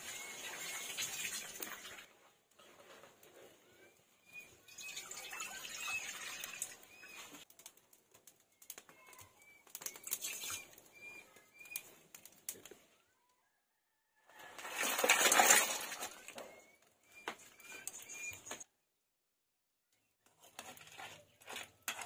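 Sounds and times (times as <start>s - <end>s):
water hissing in hot wok: 0.0s - 2.0s
bird chirps: 3.7s - 7.4s, 8.5s - 12.0s, 16.4s - 18.6s.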